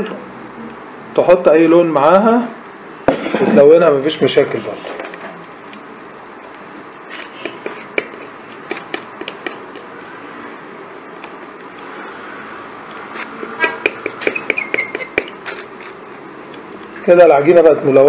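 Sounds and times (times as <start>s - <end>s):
palette knife scraping on glass: 13.0s - 16.0s.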